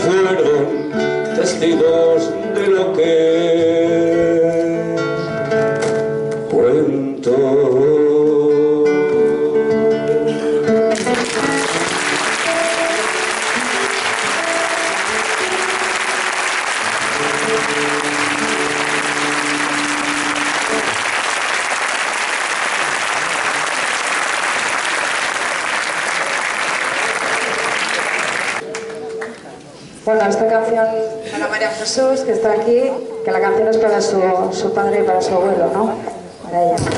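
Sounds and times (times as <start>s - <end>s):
classical guitars playing chords: 0.0s - 23.8s
audience applause: 10.9s - 29.4s.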